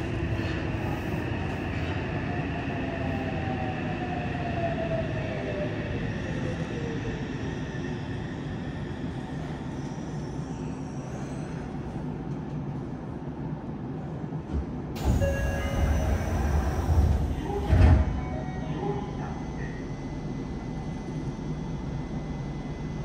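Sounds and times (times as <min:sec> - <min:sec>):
train rumbling to a stop: 0:00.0 - 0:23.0
train doors sliding open: 0:14.4 - 0:19.3.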